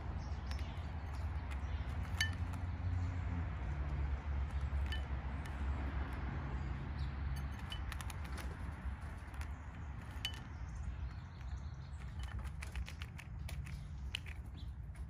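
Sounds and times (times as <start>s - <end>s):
bird bill knocking peanut shells: 7.3s - 15.0s.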